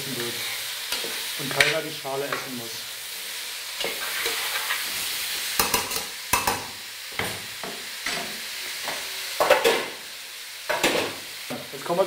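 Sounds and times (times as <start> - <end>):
vegetables sizzling in a pan: 0.0 - 12.0
spoon scraping a pan: 0.2 - 2.5, 3.8 - 9.9.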